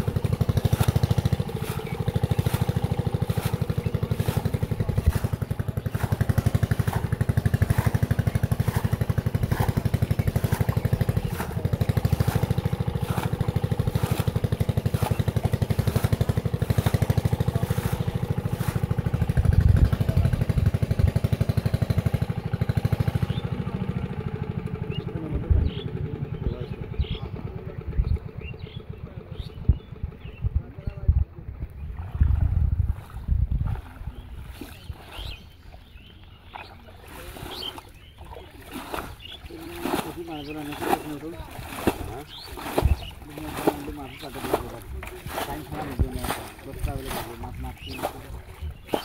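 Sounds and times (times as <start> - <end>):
hands splashing in mud and water: 0.0 - 20.4, 32.0 - 49.0
small engine running: 0.0 - 30.3, 37.0 - 49.0.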